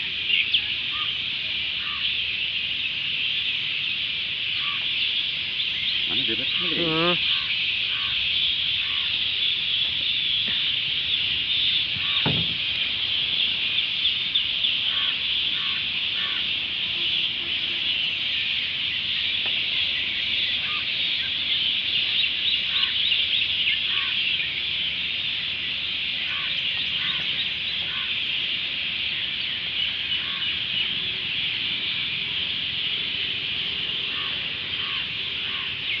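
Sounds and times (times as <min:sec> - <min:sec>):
high-pitched insect chorus: 0:00.0 - 0:36.0
short insect calls: 0:00.0 - 0:36.0
thud: 0:12.0 - 0:12.7.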